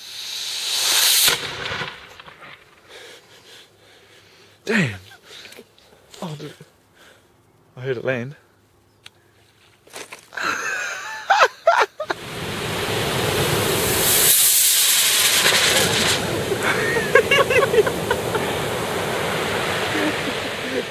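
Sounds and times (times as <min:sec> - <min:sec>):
firework rocket hissing: 0:00.0 - 0:03.4, 0:12.1 - 0:20.9
sharp cracks: 0:00.5 - 0:03.2, 0:13.8 - 0:19.0
surf washing on shingle: 0:12.1 - 0:20.9.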